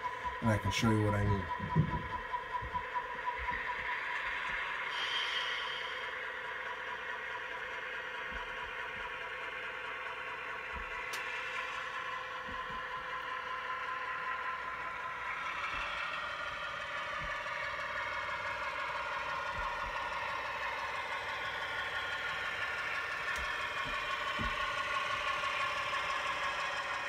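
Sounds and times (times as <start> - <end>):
model locomotive diesel engine drone: 0.0 - 27.0.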